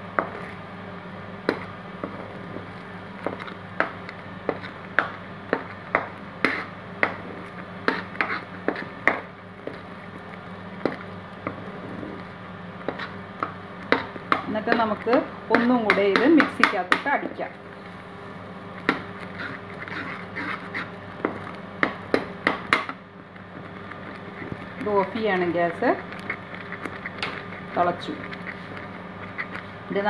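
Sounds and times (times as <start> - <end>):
steady low hum: 0.0 - 30.0
spoon scraping a pan: 6.4 - 9.9, 12.8 - 16.8, 18.8 - 21.0, 23.6 - 29.8.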